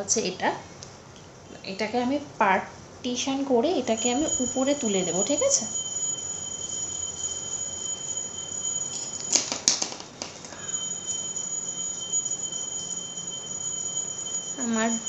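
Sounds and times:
faint steady hiss: 0:00.0 - 0:15.0
hair rustling and clicks: 0:04.0 - 0:14.5.

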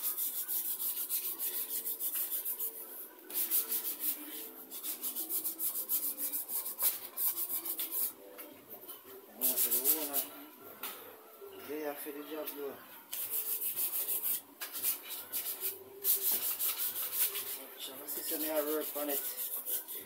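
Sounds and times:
hand sanding wood: 0:00.0 - 0:08.1, 0:09.4 - 0:10.3, 0:13.2 - 0:20.0.

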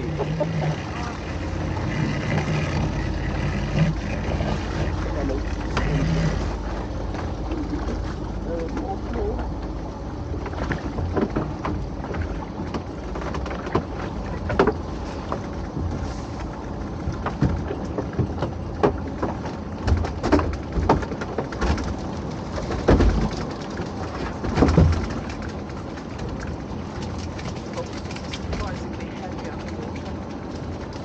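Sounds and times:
low steady rumble: 0:00.0 - 0:31.0
water splashing and dripping: 0:10.4 - 0:31.0
knocks and clatter: 0:17.0 - 0:31.0.

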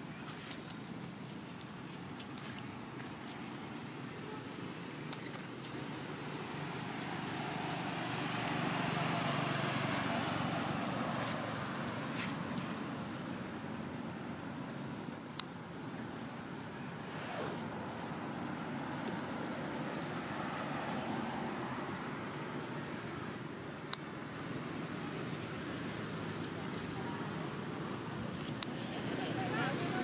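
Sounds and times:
road vehicle passing: 0:05.6 - 0:15.1, 0:16.1 - 0:23.6, 0:24.2 - 0:30.0.

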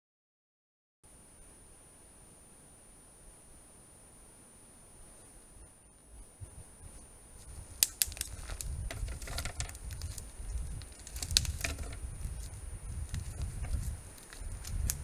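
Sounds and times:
faint high camera whine: 0:01.1 - 0:15.0
brushing against foliage: 0:06.8 - 0:15.0
animal footsteps thudding: 0:07.4 - 0:15.0
twigs snapping: 0:07.5 - 0:15.0.

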